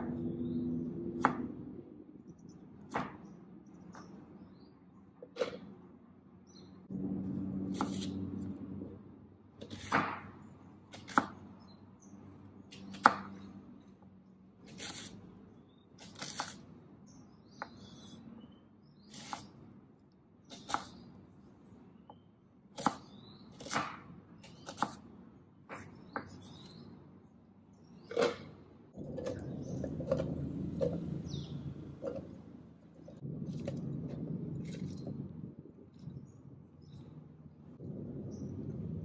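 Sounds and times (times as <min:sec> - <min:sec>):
knife chopping on wooden board: 0:01.1 - 0:01.6, 0:02.8 - 0:04.1, 0:07.7 - 0:08.2, 0:09.6 - 0:11.5, 0:12.8 - 0:13.5, 0:20.5 - 0:21.0, 0:22.7 - 0:25.0, 0:25.7 - 0:26.8, 0:28.1 - 0:31.1
low hum: 0:05.9 - 0:09.6, 0:28.8 - 0:39.0.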